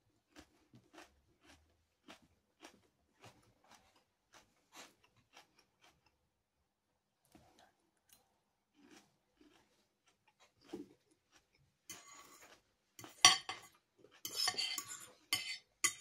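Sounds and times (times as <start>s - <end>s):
chewing with wet mouth clicks: 0.2s - 6.2s, 8.0s - 11.9s.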